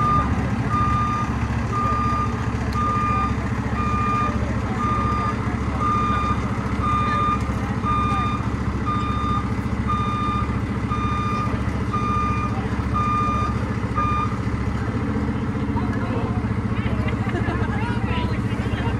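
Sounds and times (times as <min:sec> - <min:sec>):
truck reverse alarm beeping: 0:00.0 - 0:14.6
low engine rumble: 0:00.0 - 0:18.9.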